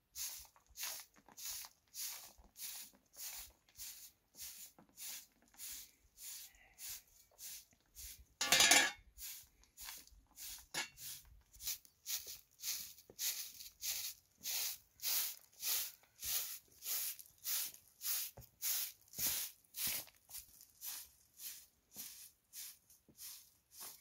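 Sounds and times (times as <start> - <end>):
broom sweeping dirt: 0.0 - 24.0.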